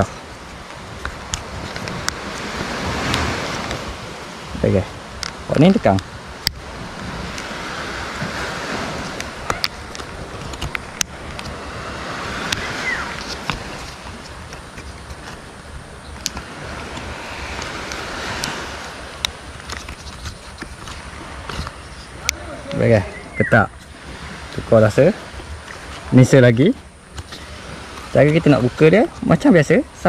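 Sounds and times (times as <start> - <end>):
surf washing ashore: 0.0 - 30.0
wind: 0.0 - 30.0.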